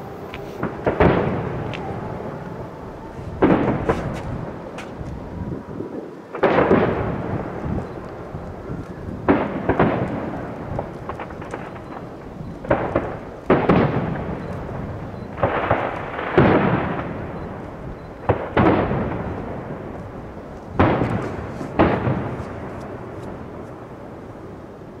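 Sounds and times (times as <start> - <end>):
firework booms with rumbling echo: 0.6 - 24.5.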